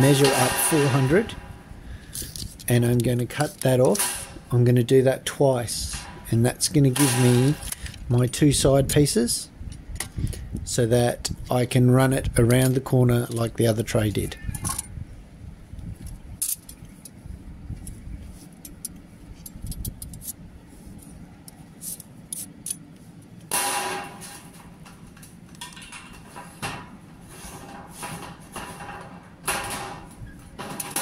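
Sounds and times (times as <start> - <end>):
snips cutting sheet metal: 0.0 - 1.6, 3.8 - 4.5, 7.0 - 7.7.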